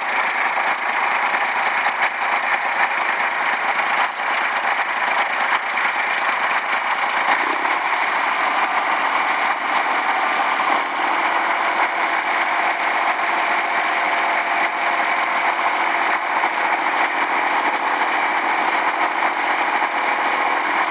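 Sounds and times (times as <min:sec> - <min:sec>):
tractor engine idling: 0:00.0 - 0:20.9.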